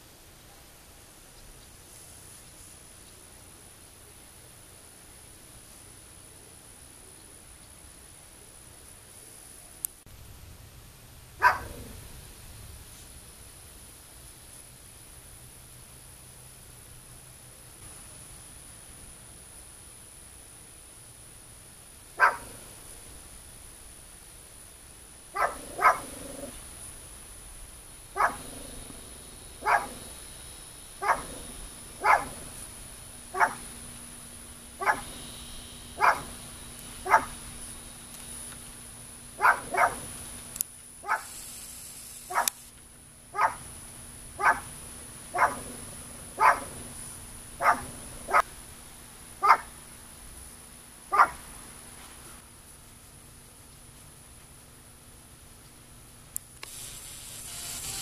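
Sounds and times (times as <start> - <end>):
dog barking: 11.4 - 12.0, 22.2 - 22.6, 25.4 - 26.1, 28.2 - 28.6, 29.6 - 30.0, 31.0 - 32.4, 33.3 - 33.6, 34.8 - 35.1, 36.0 - 36.3, 37.0 - 37.4, 39.4 - 40.1, 41.0 - 41.3, 42.3 - 42.5, 43.3 - 43.6, 44.4 - 44.7, 45.3 - 45.8, 46.4 - 46.8, 47.6 - 48.5, 49.4 - 49.7, 51.1 - 51.4.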